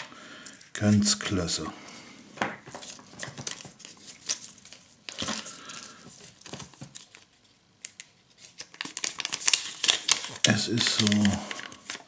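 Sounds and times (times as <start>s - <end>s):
paper slip crinkling: 2.7s - 12.0s.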